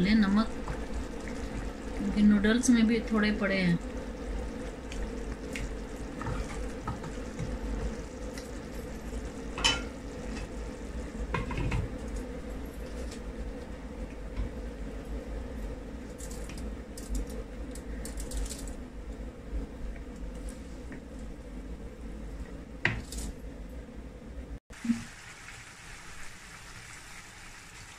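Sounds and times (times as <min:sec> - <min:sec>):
utensils knocking on pan: 0:09.6 - 0:09.9
meat sizzling in a frying pan: 0:24.8 - 0:27.9.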